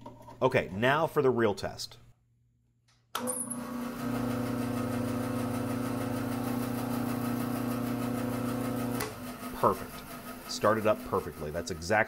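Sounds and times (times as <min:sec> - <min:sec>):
bandsaw motor humming: 0:03.6 - 0:12.0.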